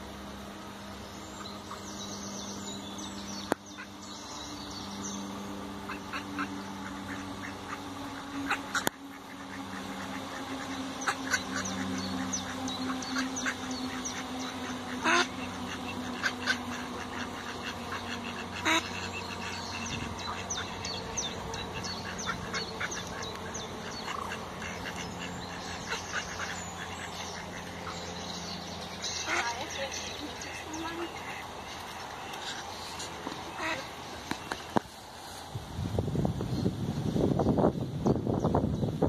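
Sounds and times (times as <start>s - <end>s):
steady low hum: 0.0s - 39.0s
ducks quacking: 5.5s - 34.9s.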